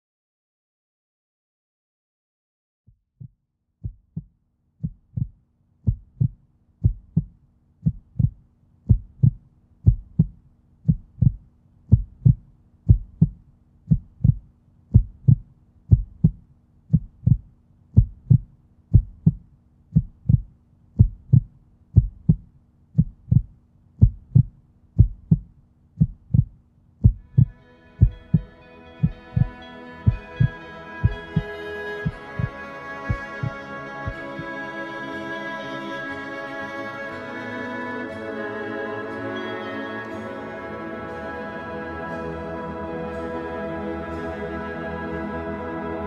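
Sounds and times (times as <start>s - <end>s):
heartbeat thumps: 3.1s - 34.5s.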